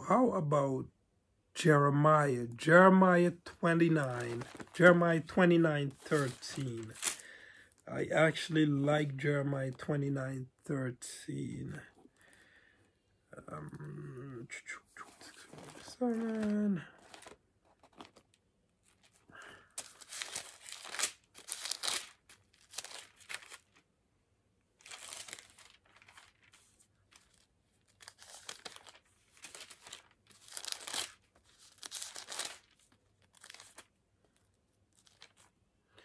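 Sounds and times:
book pages rustling and flipping: 3.8 - 7.2, 15.0 - 23.8, 24.8 - 35.6.

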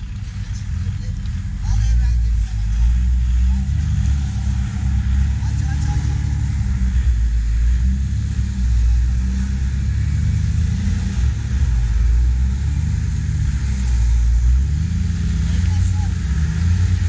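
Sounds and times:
engine rumbling at low revs: 0.0 - 17.0.

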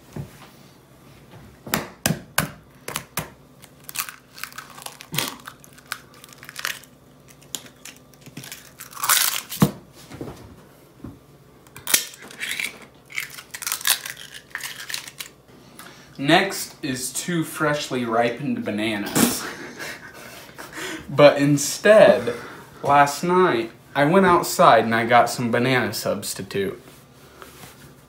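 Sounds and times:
eggshells cracking and crunching: 2.8 - 9.7, 11.7 - 15.4.

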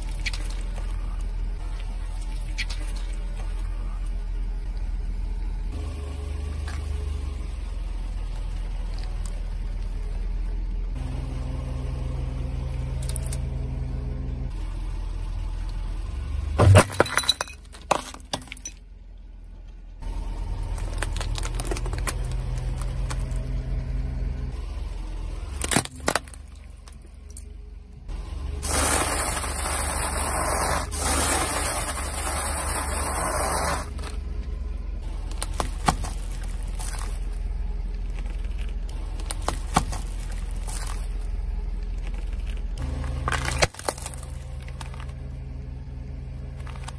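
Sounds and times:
car engine running low: 0.0 - 46.9
objects crushed under tyres: 16.6 - 18.9, 20.6 - 23.5, 25.5 - 27.0, 28.6 - 34.2, 35.0 - 45.4, 46.5 - 46.9.

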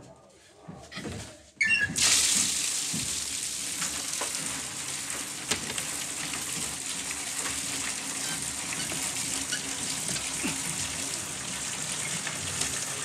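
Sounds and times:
tap squeal: 0.9 - 2.0, 8.2 - 9.8
water gushing from taps: 1.9 - 13.0.

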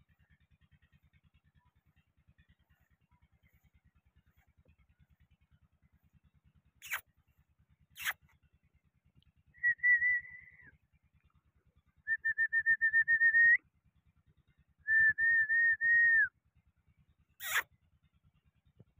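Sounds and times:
high fluttering whistles: 6.8 - 7.0, 8.0 - 8.2, 17.4 - 17.6.

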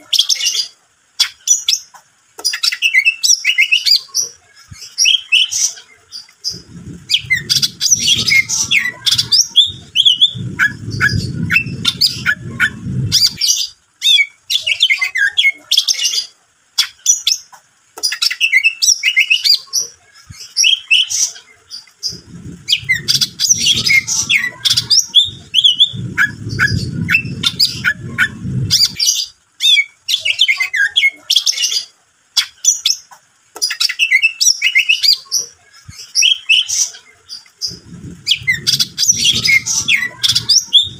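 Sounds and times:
bird song chirps and whistles: 4.8 - 16.2, 20.4 - 21.2, 22.1 - 31.8, 33.6 - 35.2, 36.0 - 36.9, 37.7 - 40.9
low rumble: 6.5 - 13.5, 22.0 - 29.1, 37.7 - 40.9.

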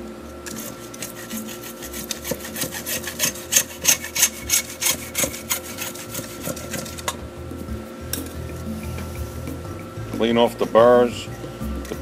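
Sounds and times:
hacksaw cutting plastic pipe: 0.5 - 7.2.

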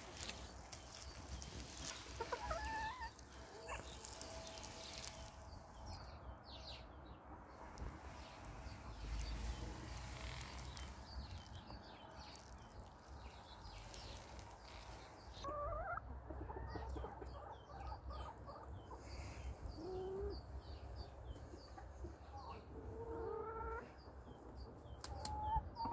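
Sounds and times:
chickens squawking and clucking: 0.9 - 5.2, 14.7 - 20.5, 21.8 - 24.5.

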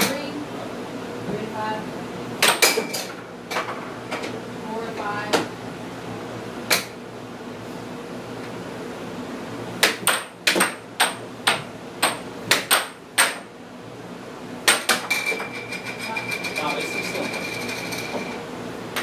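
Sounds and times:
air hockey puck clacking: 9.8 - 13.5.

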